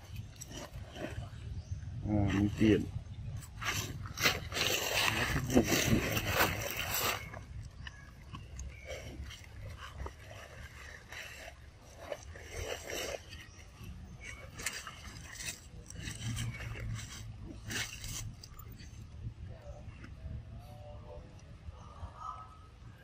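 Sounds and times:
rustles and scrapes: 0.0s - 22.0s.

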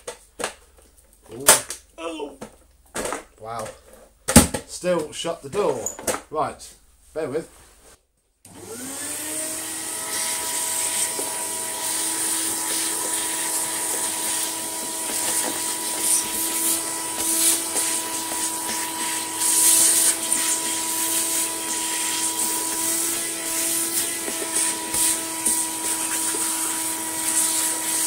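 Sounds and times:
vacuum cleaner motor whine: 8.5s - 28.0s.

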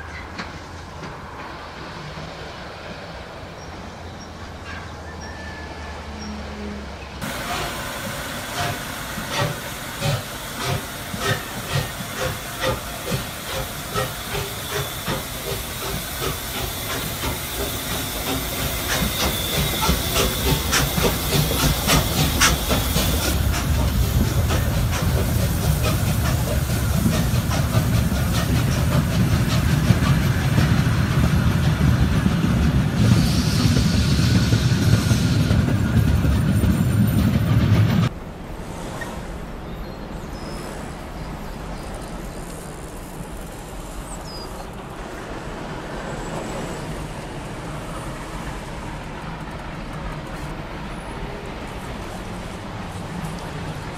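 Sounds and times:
steam hissing: 7.2s - 38.1s
steam locomotive exhaust chuffs: 7.2s - 38.2s.

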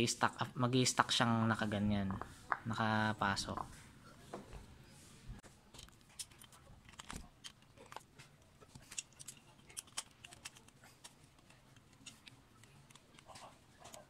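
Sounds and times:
small metal parts clicking: 5.8s - 8.1s, 8.7s - 14.0s.

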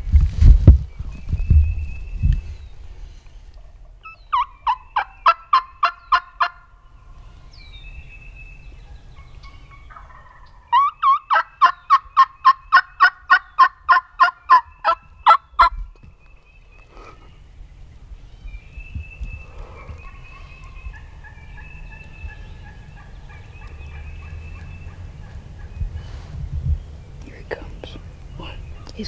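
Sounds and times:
turkey yelping: 4.0s - 6.6s, 9.2s - 15.7s.

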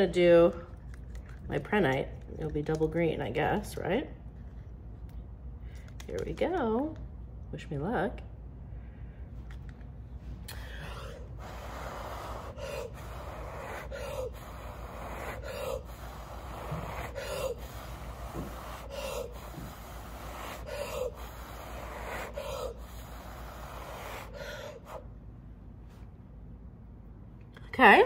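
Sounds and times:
person blowing through lips: 10.5s - 25.1s
person breathing in: 10.5s - 25.1s.

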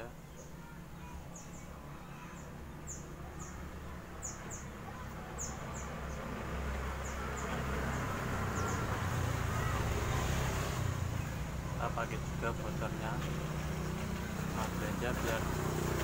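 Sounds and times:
small bird chirping: 0.0s - 10.2s.

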